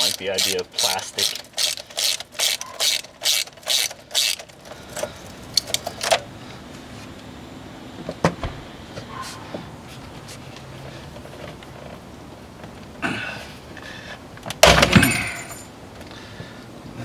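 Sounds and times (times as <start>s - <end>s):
ratchet clicking: 0.0s - 4.6s.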